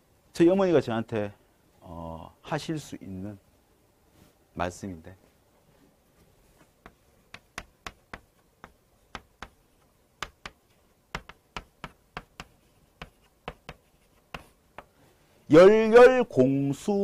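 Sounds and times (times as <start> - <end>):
chalk tapping on chalkboard: 6.6 - 15.0.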